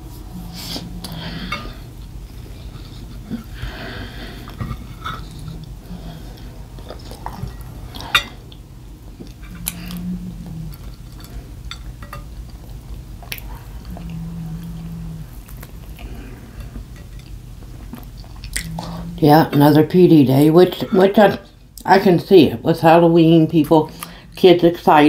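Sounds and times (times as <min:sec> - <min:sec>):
person chewing: 0:00.4 - 0:19.2
dishes and cutlery clicks: 0:11.2 - 0:12.3.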